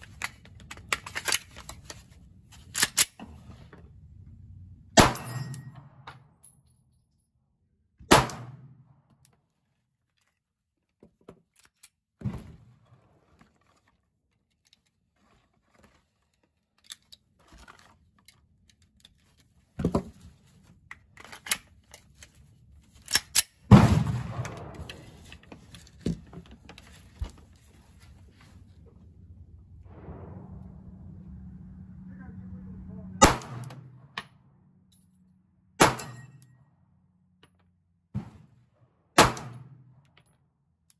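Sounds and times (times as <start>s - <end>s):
pistol shot with echo: 8.1s - 8.7s, 33.2s - 34.0s.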